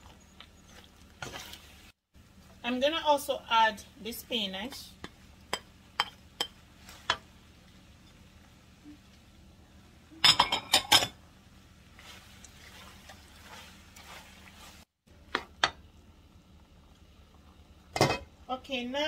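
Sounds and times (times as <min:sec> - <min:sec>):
soft stirring of food: 0:00.0 - 0:02.7, 0:03.8 - 0:10.3, 0:11.1 - 0:15.6.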